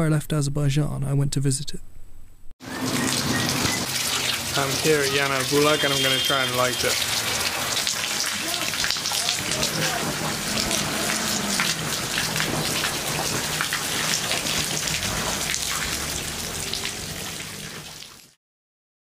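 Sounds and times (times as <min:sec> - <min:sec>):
water splashing onto paving: 0:02.6 - 0:18.4
water bubbling in pipe: 0:05.5 - 0:18.0.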